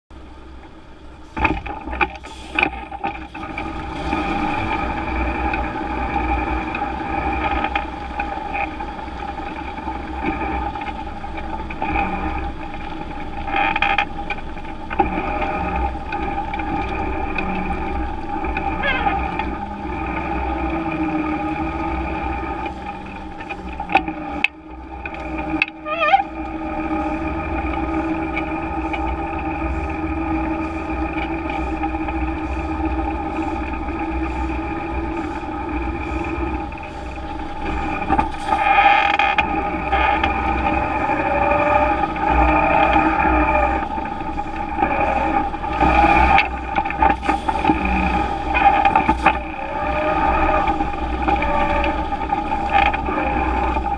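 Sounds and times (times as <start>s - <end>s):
truck engine drone: 0.1s - 53.9s.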